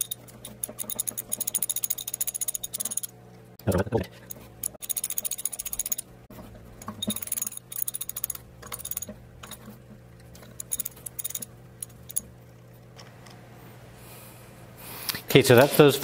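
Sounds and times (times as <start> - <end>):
ratchet wrench clicking: 0.0 - 3.1, 4.2 - 6.1, 7.0 - 9.6, 10.5 - 12.2.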